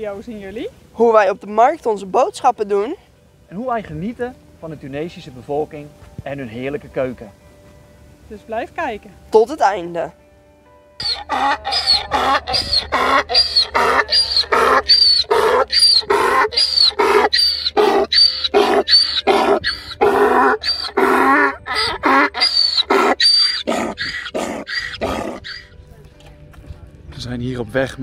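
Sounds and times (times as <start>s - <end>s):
donkey braying: 11.0s - 25.8s.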